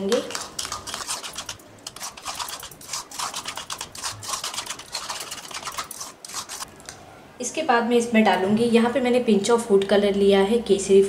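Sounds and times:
metal spoon scraping a bowl: 0.0s - 6.7s.

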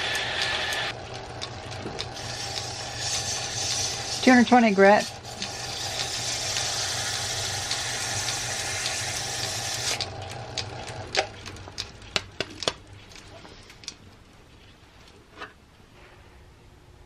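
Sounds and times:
lathe motor hum: 0.0s - 11.0s
sandpaper hissing on spinning wood: 2.2s - 10.0s
sharp clicks and knocks: 10.5s - 12.8s.

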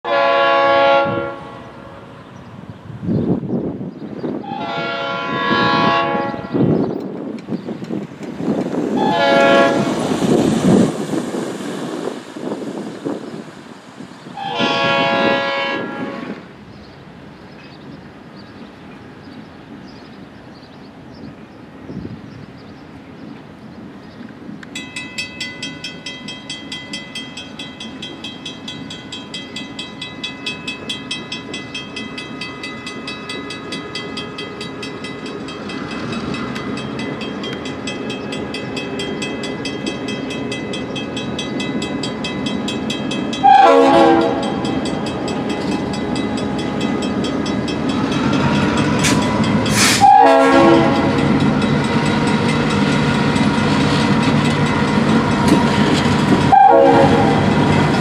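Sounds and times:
locomotive horn: 0.0s - 2.1s, 4.4s - 6.8s, 8.9s - 10.0s, 14.4s - 16.5s, 43.4s - 44.7s, 49.0s - 51.4s, 56.4s - 58.0s
freight train rumbling: 0.0s - 58.0s
crossing warning bell ringing: 24.6s - 58.0s.

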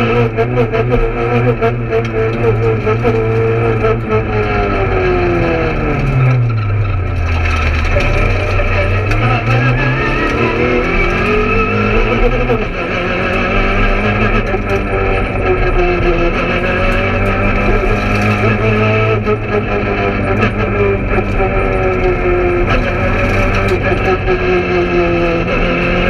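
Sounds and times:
car engine from inside cabin: 0.0s - 26.0s.

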